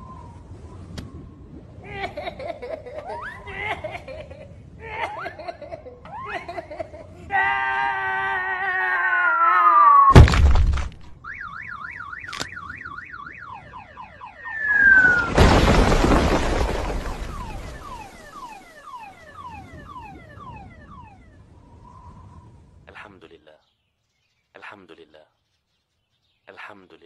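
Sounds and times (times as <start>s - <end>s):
loud crash: 10.1s - 11.0s, 14.6s - 18.2s
crashing rumble: 10.1s - 11.2s, 14.5s - 18.7s
warbling alarm tone: 11.3s - 15.4s, 16.0s - 21.5s
cartoon falling whistle: 14.4s - 16.4s
short falling chirps: 14.5s - 18.7s.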